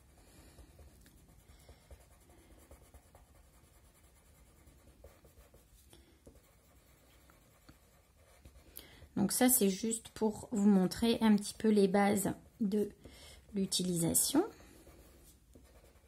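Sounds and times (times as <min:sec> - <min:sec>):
pencil scratching on card: 0:00.0 - 0:08.7, 0:13.5 - 0:16.0.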